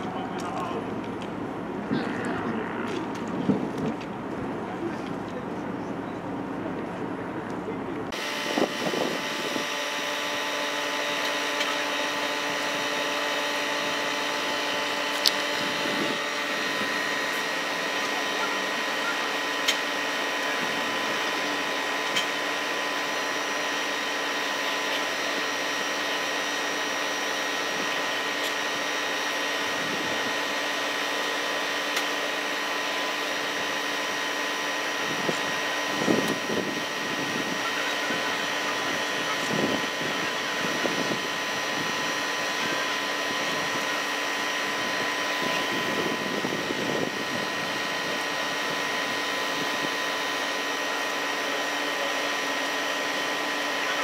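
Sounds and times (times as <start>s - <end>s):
low rumbles: 0.0s - 8.2s
machine whir with whining tones: 0.0s - 54.0s.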